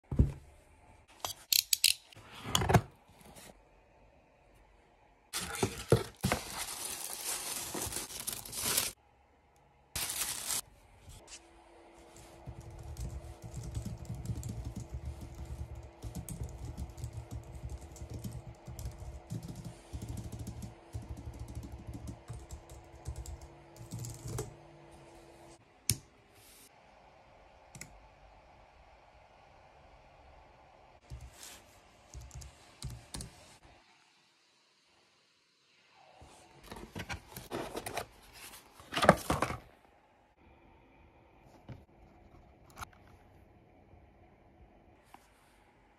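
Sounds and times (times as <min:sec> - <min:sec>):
packaging noise: 0:05.4 - 0:09.0, 0:10.0 - 0:10.6
typing on a keyboard: 0:12.5 - 0:24.5.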